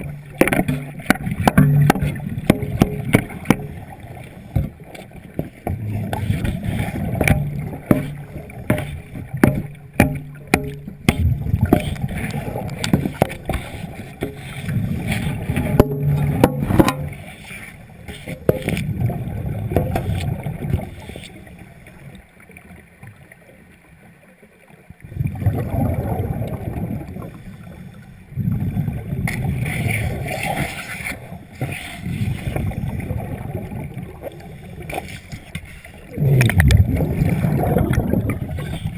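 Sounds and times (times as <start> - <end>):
clicks and knocks: 0.0 - 4.0, 5.4 - 14.6, 15.4 - 17.3
diver exhaling bubbles underwater: 25.1 - 27.4, 36.0 - 38.9.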